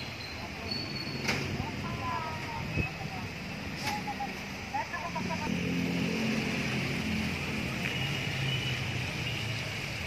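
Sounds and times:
steady outdoor hiss: 0:00.0 - 0:10.0
vehicle engine running: 0:01.6 - 0:08.4.

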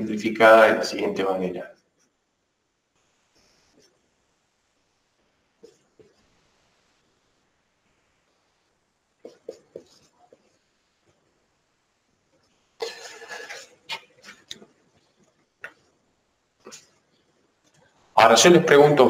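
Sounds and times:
marker squeaking on whiteboard: 0:05.6 - 0:06.3, 0:09.2 - 0:10.7, 0:12.4 - 0:15.9.

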